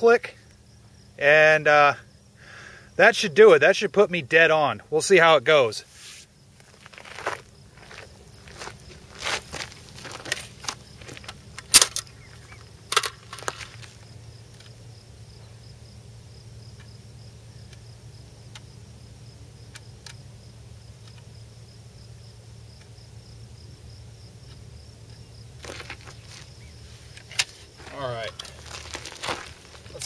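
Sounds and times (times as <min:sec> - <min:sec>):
high insect buzz: 0:00.3 - 0:30.0
sling rustling on gravel: 0:05.8 - 0:14.2, 0:25.5 - 0:30.0
rifle metal clacks: 0:10.2 - 0:13.7
faint ticks: 0:17.6 - 0:18.8, 0:19.7 - 0:20.2.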